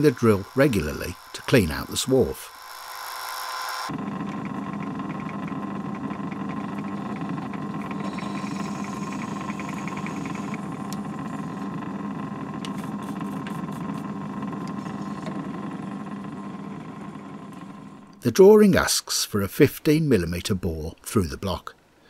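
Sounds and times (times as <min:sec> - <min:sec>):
drill cutting metal ticking: 0:00.0 - 0:16.7
lathe humming: 0:00.0 - 0:18.2.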